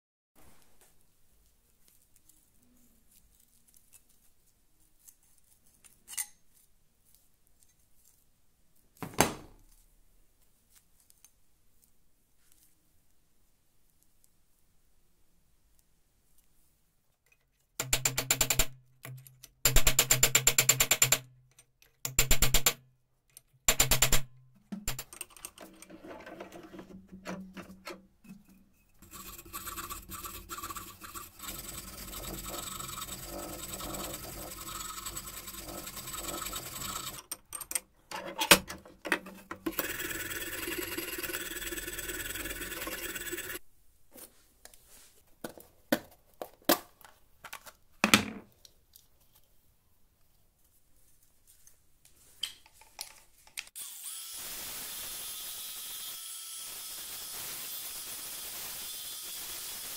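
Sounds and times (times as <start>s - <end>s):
wire cup brush scrubbing metal: 27.8s - 37.3s, 39.7s - 43.6s
file rasping on steel: 28.4s - 37.2s.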